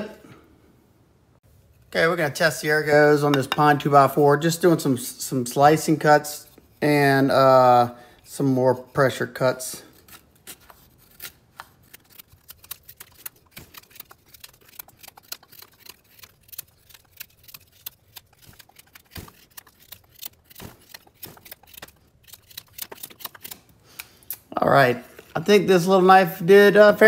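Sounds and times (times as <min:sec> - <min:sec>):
knife carving wood: 0:05.8 - 0:24.5.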